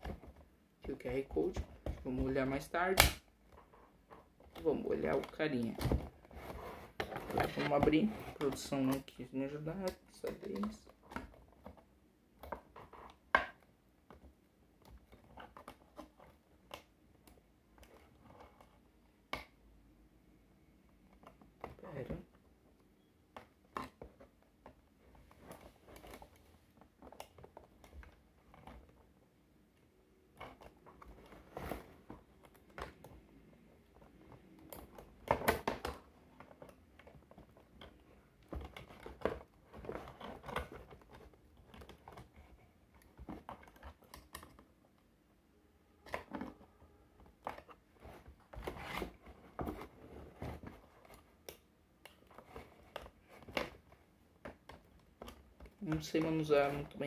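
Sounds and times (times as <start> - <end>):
toy box rustling and knocking: 0.0 - 16.7, 30.2 - 44.8.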